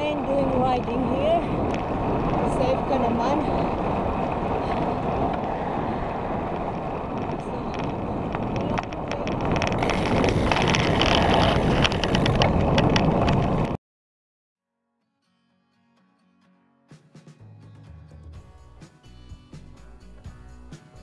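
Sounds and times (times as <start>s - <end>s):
tyre and road noise: 0.0s - 13.8s
wind buffeting microphone: 0.0s - 13.8s
rattle of clicks: 7.2s - 13.6s.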